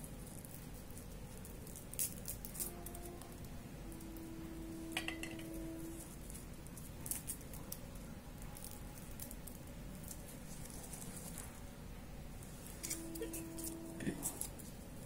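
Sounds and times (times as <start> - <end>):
garlic skins crackling: 0.0 - 11.8, 12.4 - 15.0
faint steady tone: 2.6 - 9.2, 12.0 - 15.0.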